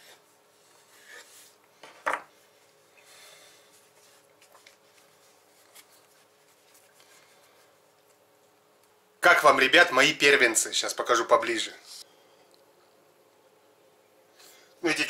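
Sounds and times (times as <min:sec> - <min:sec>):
knife and dough handling: 0:00.0 - 0:08.5.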